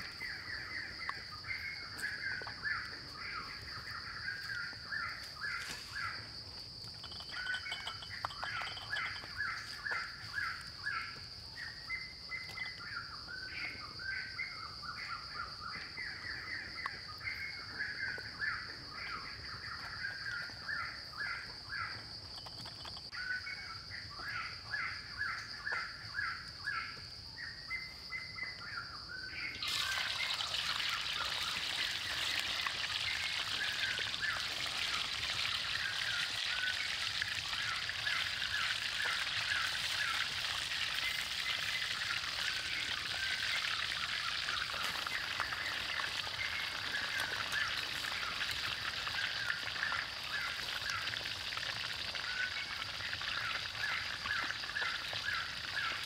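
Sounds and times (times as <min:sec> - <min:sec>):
birds chirping: 0:00.0 - 0:34.4
food sizzling in hot oil: 0:29.6 - 0:56.0.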